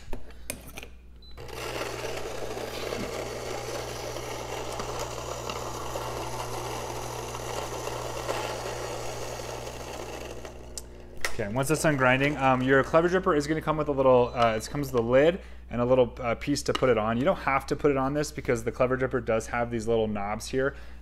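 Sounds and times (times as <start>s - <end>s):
electric coffee grinder running: 1.4s - 13.0s.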